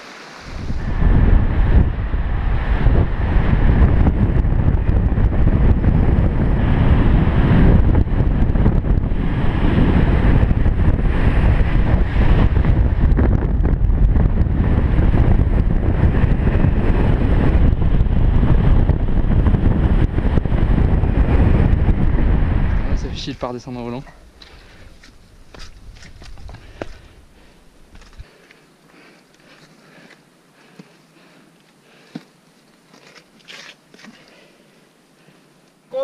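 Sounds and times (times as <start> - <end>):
wind buffeting microphone: 0.4 - 28.4.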